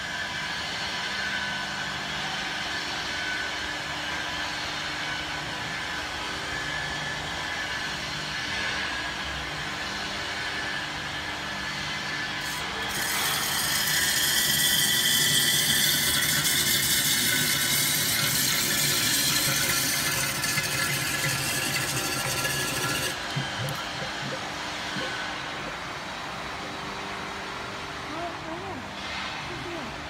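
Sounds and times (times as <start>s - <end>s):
mixer motors humming: 12.0s - 28.9s.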